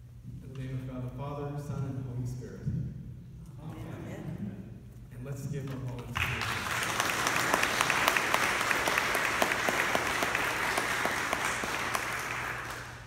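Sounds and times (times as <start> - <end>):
congregation applauding: 6.1 - 13.0.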